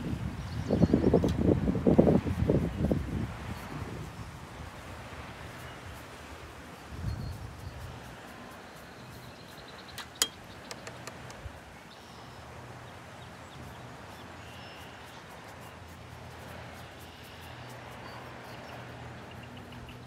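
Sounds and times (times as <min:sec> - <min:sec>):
low rumble of wind: 0:00.0 - 0:20.0
brush and palette taps: 0:10.0 - 0:11.4
sharp click: 0:10.0 - 0:11.4.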